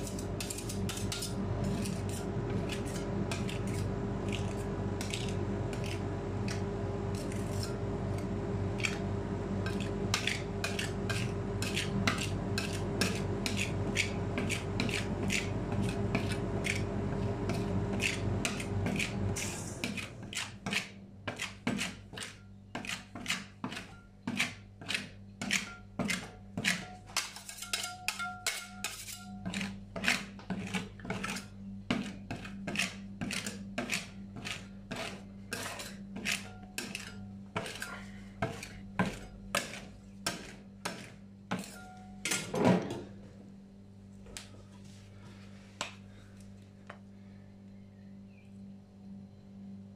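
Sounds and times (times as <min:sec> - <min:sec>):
metal spatula tapping and scraping: 0:00.0 - 0:08.2, 0:09.6 - 0:16.9, 0:19.8 - 0:42.5
steady machine hum: 0:00.0 - 0:22.8, 0:23.5 - 0:49.9.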